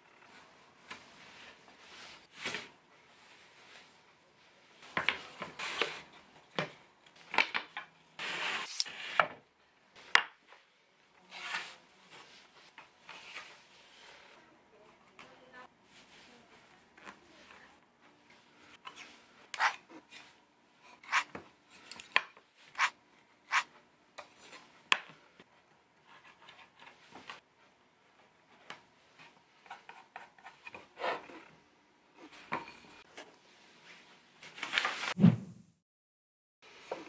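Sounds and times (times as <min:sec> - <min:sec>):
pencil scratching: 0:21.0 - 0:21.4, 0:22.8 - 0:23.7.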